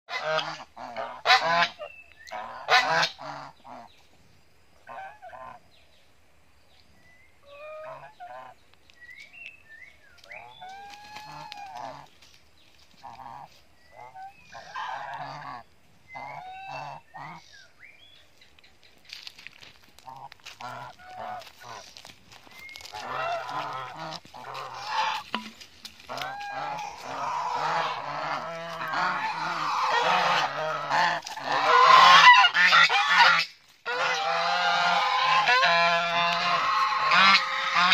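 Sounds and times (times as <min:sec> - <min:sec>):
geese honking: 0:00.1 - 0:03.9, 0:04.8 - 0:05.6, 0:07.4 - 0:08.6, 0:10.3 - 0:12.2, 0:13.0 - 0:17.6, 0:20.0 - 0:22.1, 0:22.7 - 0:37.9.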